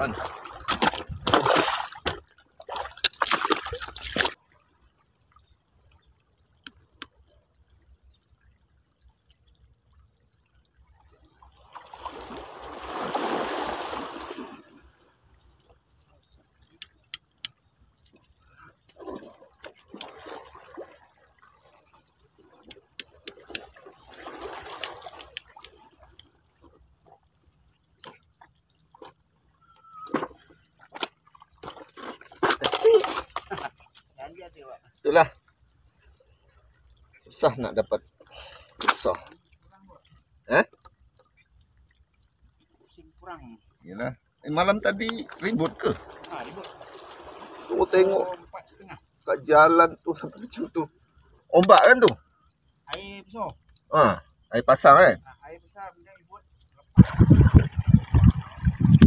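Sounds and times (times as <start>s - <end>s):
rush of water: 0.0s - 4.6s, 11.4s - 15.4s, 16.7s - 26.3s, 27.9s - 35.4s, 36.0s - 50.9s, 51.5s - 59.0s
water trickling among rocks: 0.0s - 59.0s.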